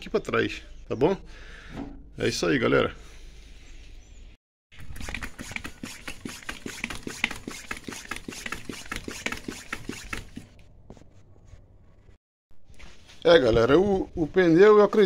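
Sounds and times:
hand pump inflating tyre: 4.8 - 10.5.

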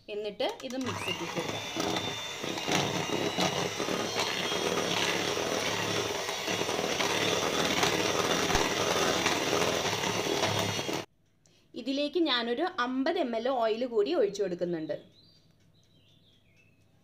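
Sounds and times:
electric hand mixer whisking batter: 0.6 - 11.1.

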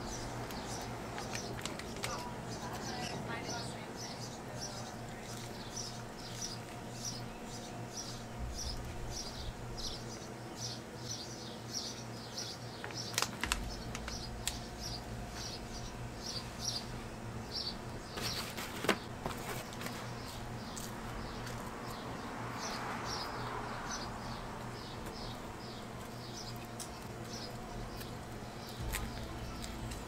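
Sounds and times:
plastic water bottle crackles: 13.1 - 14.6.

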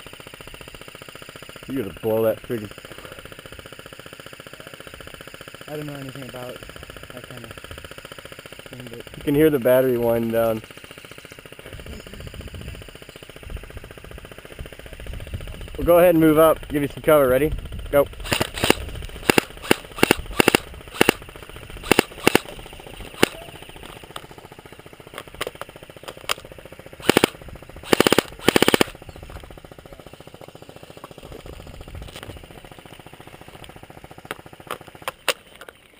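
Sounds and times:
airsoft guns firing: 18.0 - 24.3, 25.1 - 29.0.

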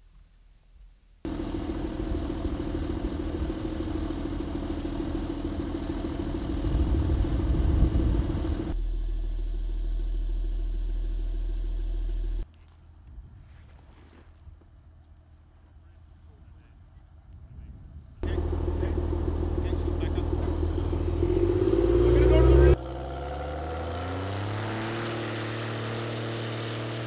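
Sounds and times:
diesel engine running: 1.3 - 12.4, 18.2 - 27.0.

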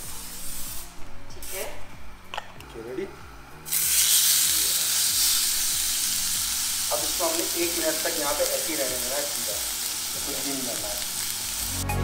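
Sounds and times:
steak sizzling in a hot pan: 3.7 - 11.8.

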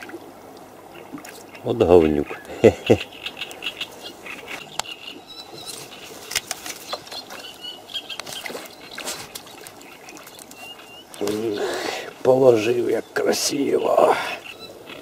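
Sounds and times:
bird chirps: 2.4 - 11.6, 12.8 - 15.0
rustles and clicks: 5.6 - 9.8.

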